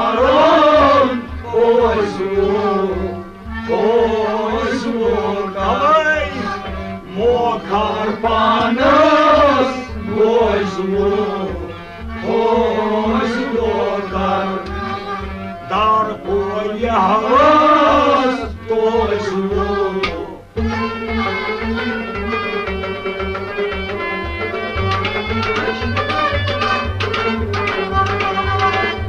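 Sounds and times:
man singing melismatic phrases: 0:00.0 - 0:14.6, 0:15.7 - 0:20.4
low drum beat: 0:00.0 - 0:21.3
steady drone: 0:00.0 - 0:29.0.

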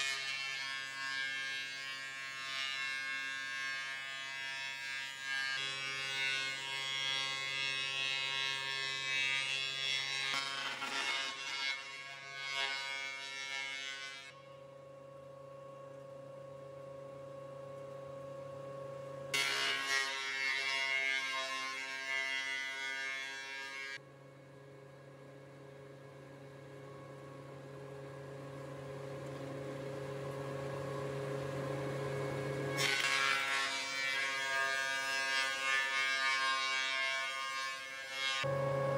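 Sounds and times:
planer cutting boards: 0:00.0 - 0:14.3, 0:19.4 - 0:24.0, 0:32.7 - 0:38.9
planer motor hum: 0:38.4 - 0:38.9.

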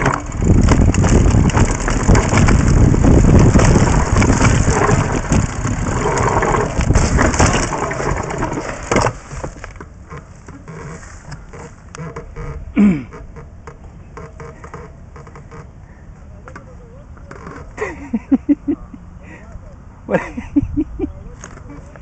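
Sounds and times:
mountain bike rattling over dirt: 0:00.0 - 0:13.6.

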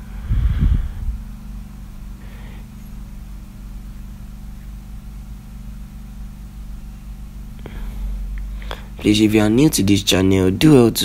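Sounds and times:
low machine hum: 0:00.0 - 0:11.0.

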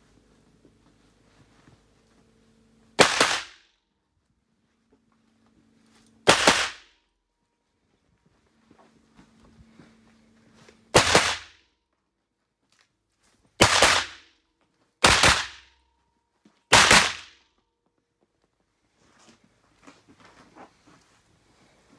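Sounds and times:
pistol shots ringing indoors: 0:03.0 - 0:03.7, 0:06.2 - 0:07.0, 0:10.9 - 0:11.6, 0:13.6 - 0:14.4, 0:15.0 - 0:16.0, 0:16.7 - 0:17.4.

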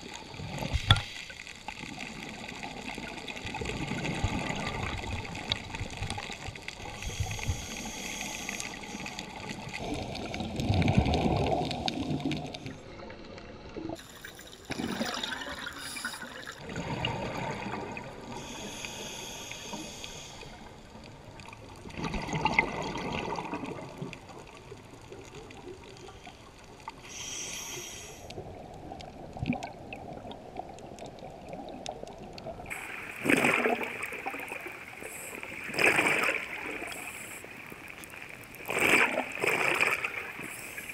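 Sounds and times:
regulator hiss on inhale: 0:00.7 - 0:01.7, 0:06.8 - 0:09.5, 0:15.7 - 0:16.6, 0:18.3 - 0:21.0, 0:26.0 - 0:28.4, 0:34.8 - 0:35.6, 0:36.8 - 0:37.6, 0:40.3 - 0:40.9
exhaled bubbles rushing: 0:01.8 - 0:06.5, 0:09.4 - 0:12.8, 0:13.8 - 0:18.4, 0:21.8 - 0:24.5, 0:29.2 - 0:37.4, 0:38.0 - 0:40.9.

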